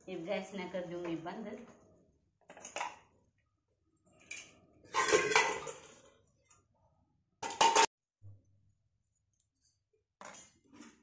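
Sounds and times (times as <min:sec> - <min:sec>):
metal utensils clinking on floor: 0:09.5 - 0:10.9.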